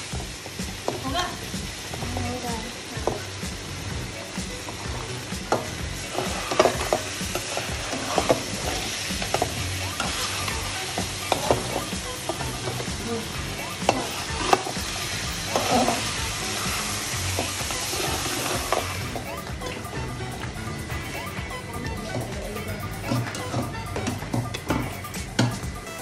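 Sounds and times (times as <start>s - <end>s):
food sizzling in a pan: 0.0s - 26.0s
metal spatula scraping a pan: 4.6s - 20.0s.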